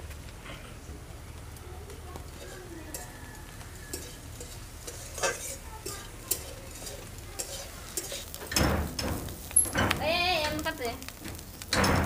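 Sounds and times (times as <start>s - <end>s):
shrimp sizzling: 1.0s - 12.0s
metal spatula scraping wok: 2.3s - 10.0s.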